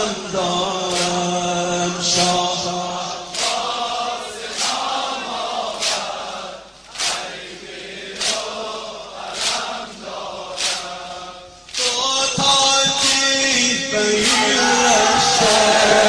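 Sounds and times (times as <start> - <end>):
men chanting a lament: 0.0 - 16.0
sharp rhythmic beat: 11.6 - 16.0.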